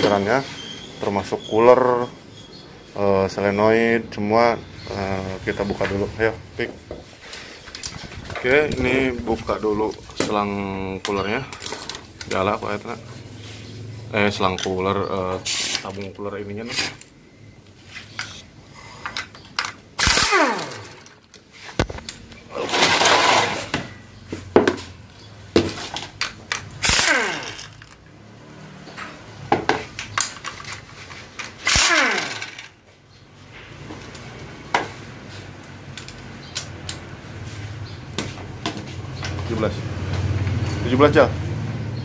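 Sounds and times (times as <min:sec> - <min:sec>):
metal tools clinking: 0:07.4 - 0:12.8
power tool whirring: 0:20.0 - 0:21.3, 0:22.6 - 0:23.8, 0:26.8 - 0:28.8, 0:31.4 - 0:32.8.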